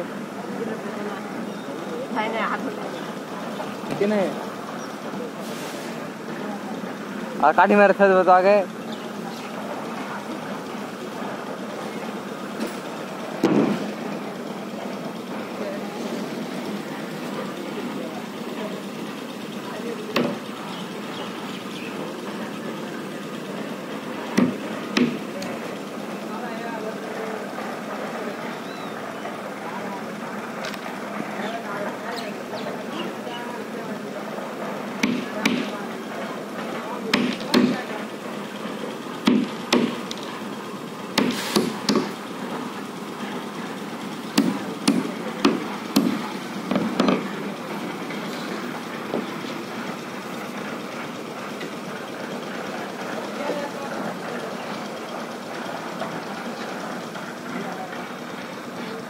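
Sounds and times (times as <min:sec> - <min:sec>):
hammer blows on timber: 0:44.4 - 0:47.3.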